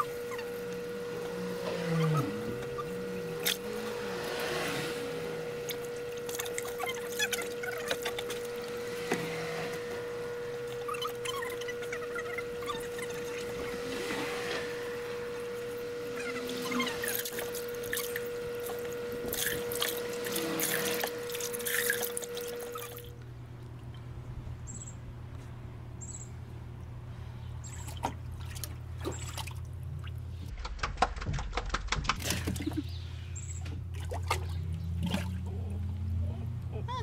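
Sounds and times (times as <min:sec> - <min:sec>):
steady low hum: 0:00.0 - 0:37.0
puppy splashing in bathwater: 0:27.7 - 0:32.9, 0:33.8 - 0:35.8.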